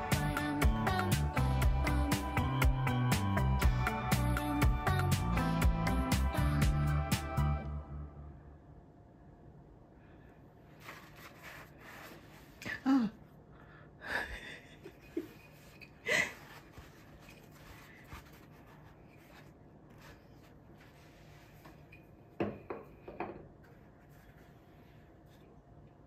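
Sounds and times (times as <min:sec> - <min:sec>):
paper towel roll rustling: 0:10.6 - 0:12.7, 0:15.1 - 0:22.0, 0:23.6 - 0:25.6.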